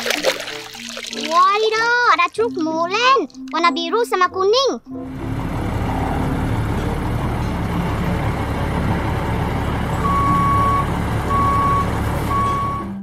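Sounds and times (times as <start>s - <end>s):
diesel truck engine rumbling: 4.9s - 13.0s
reversing alarm beeping: 10.0s - 13.0s.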